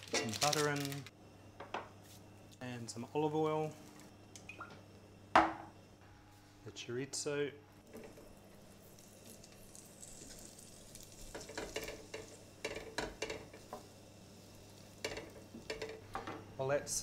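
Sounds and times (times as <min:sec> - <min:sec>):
food sizzling in a pan: 0:08.6 - 0:16.0.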